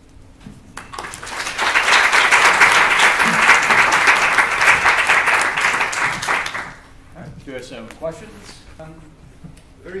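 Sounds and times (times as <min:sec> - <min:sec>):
audience clapping: 0:00.8 - 0:06.9.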